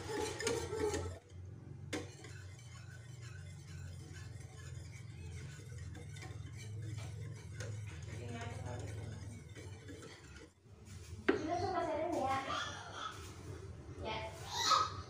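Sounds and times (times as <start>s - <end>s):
whisk clinking against pot: 0.0s - 10.7s
whisk stirring in a pot: 0.0s - 13.8s.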